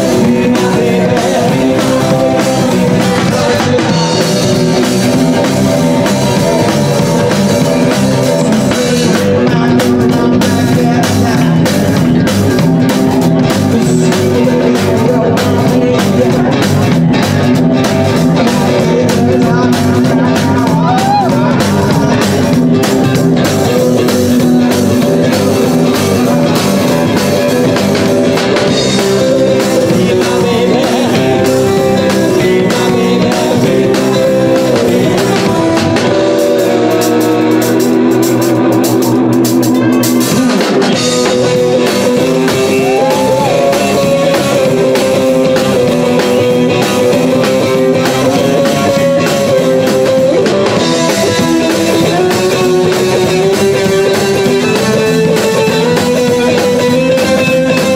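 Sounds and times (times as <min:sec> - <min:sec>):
bass guitar: 0:00.0 - 0:57.9
drums: 0:00.0 - 0:57.9
electric guitar: 0:00.0 - 0:57.9.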